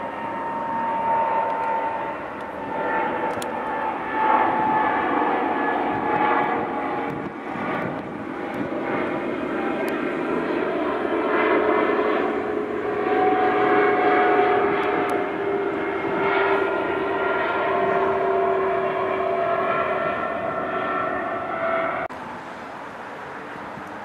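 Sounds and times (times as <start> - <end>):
jet engines roaring: 0.0 - 24.0.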